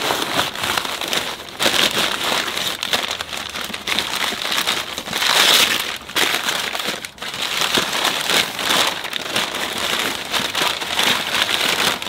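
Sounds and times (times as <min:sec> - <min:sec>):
packing paper crinkling: 0:00.0 - 0:12.0.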